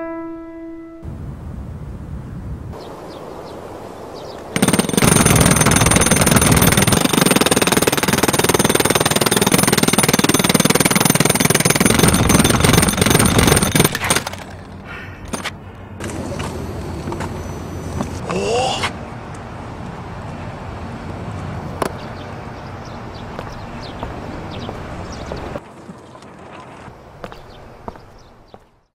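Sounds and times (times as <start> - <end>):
jackhammer hammering plastic: 4.6 - 16.5.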